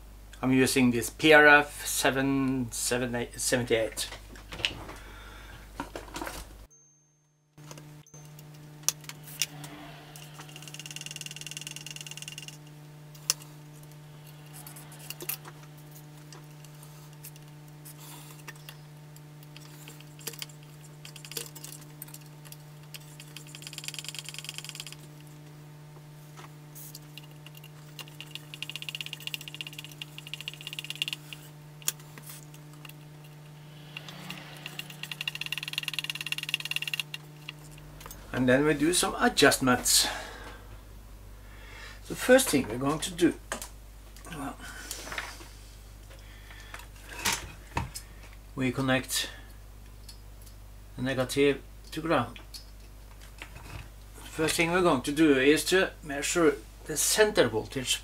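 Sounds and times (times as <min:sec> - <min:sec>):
steady low hum: 0:00.0 - 0:58.0
potentiometer clicks and rattles: 0:22.9 - 0:25.0, 0:27.1 - 0:32.0, 0:34.6 - 0:37.8.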